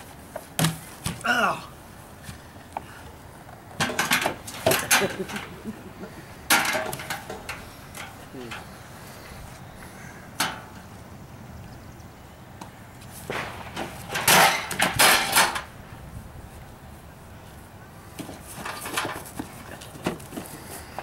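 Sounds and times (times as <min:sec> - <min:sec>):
wooden boards clattering: 0:03.7 - 0:05.7, 0:06.5 - 0:08.2, 0:13.3 - 0:15.7, 0:18.2 - 0:21.0.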